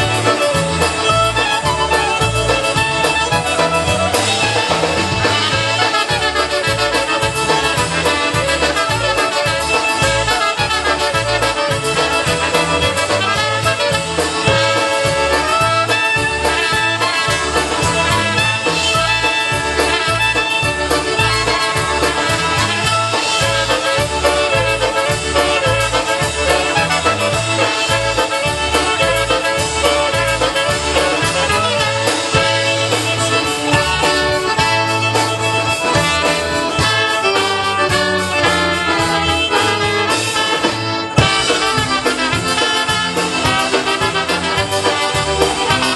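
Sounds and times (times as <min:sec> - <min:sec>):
accordion: 0:00.0 - 0:45.9
clarinet: 0:00.0 - 0:45.9
drums: 0:00.0 - 0:45.9
fiddle: 0:00.0 - 0:45.9
string bass alternating notes: 0:00.0 - 0:45.9
trumpet: 0:00.0 - 0:45.9.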